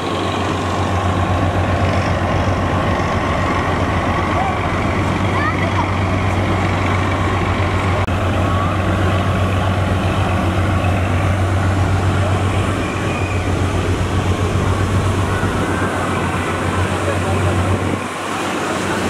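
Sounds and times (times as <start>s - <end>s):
boat diesel engines droning: 0.0s - 19.0s
rushing water: 0.0s - 19.0s.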